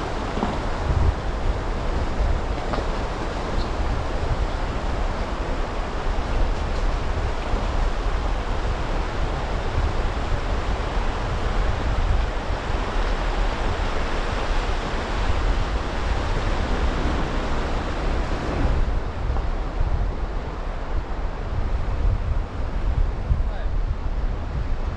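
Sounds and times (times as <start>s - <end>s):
car engine low rumble: 11.2s - 24.9s
tyres splashing through water: 12.3s - 19.3s.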